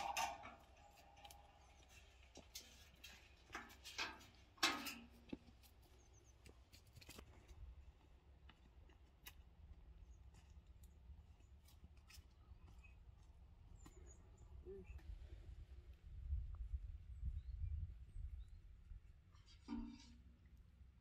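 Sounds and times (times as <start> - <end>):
metal bucket knocks: 0.0 - 0.6
footsteps on dirt path: 0.8 - 14.4.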